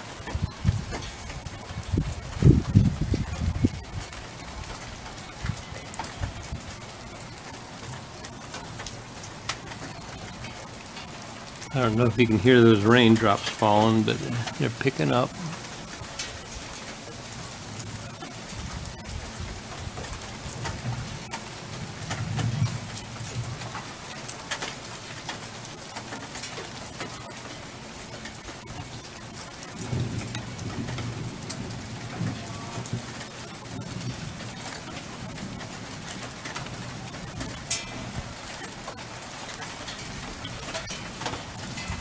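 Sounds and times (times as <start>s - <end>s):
thunder rumbling: 0.0s - 10.5s, 11.5s - 23.8s, 28.4s - 39.0s
rain falling: 0.0s - 42.0s.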